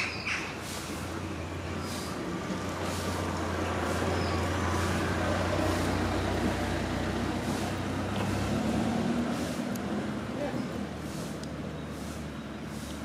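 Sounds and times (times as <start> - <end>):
vehicle engine rumbling: 0.0 - 13.0.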